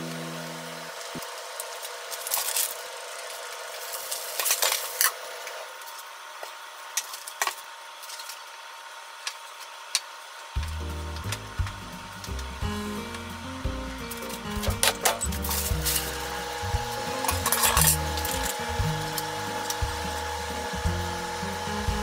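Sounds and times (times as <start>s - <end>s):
egg sizzling in a hot pan: 0.0s - 22.0s
background music: 10.6s - 22.0s.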